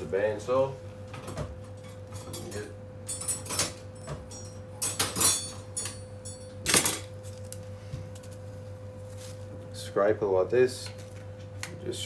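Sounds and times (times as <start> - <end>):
metal utensils clinking on steel: 2.2 - 7.1.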